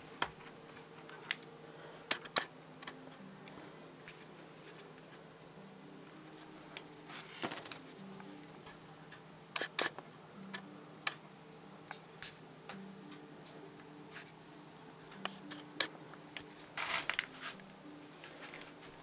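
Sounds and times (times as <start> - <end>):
faint low background tones: 0.0 - 19.0.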